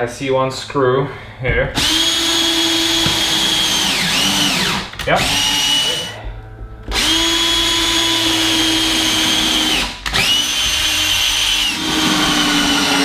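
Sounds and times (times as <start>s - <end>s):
cordless drill driving a screw: 1.8s - 6.1s, 6.9s - 13.0s.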